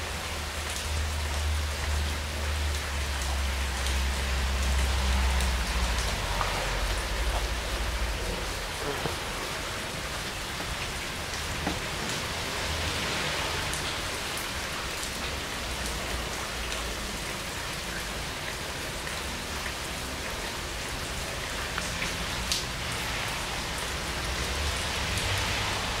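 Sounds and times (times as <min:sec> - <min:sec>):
heavy rain on leaves: 0:00.0 - 0:26.0
raindrop taps: 0:00.7 - 0:15.9, 0:21.6 - 0:23.2.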